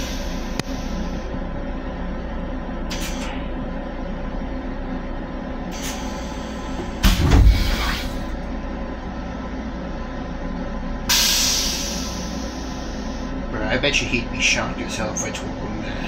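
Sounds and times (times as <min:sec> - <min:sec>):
train rumble and hum: 0:00.0 - 0:16.0
loud thump: 0:06.8 - 0:08.2.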